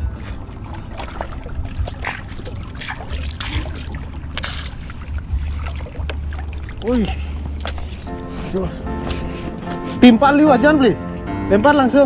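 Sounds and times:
low rumble: 0.0 - 9.6
water splashing and dripping: 0.0 - 10.9.

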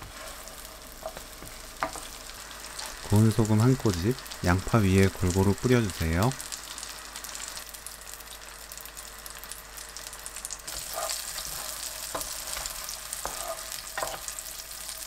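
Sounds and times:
spatula scraping a pan: 0.0 - 2.1, 10.7 - 15.0
butter sizzling in a pan: 0.0 - 15.0.

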